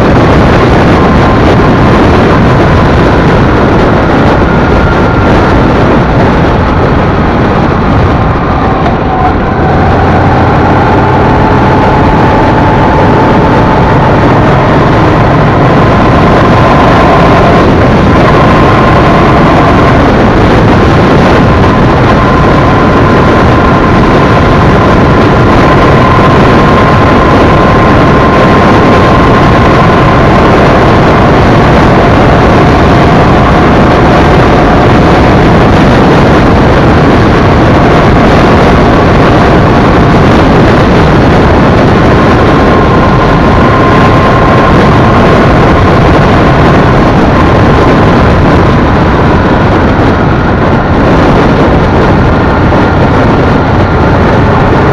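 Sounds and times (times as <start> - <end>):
faint steady whine: 0.0 - 54.9
motorcycle engine cruising: 0.0 - 54.9
wind and road noise: 0.0 - 54.9.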